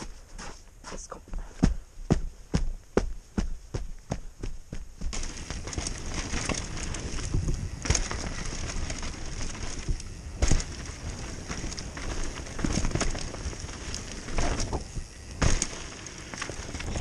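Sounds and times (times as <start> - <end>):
bike tyres rushing on dirt: 1.4 - 17.0
bike rattles and clicks: 1.6 - 17.0
bike hitting bump: 4.7 - 17.0.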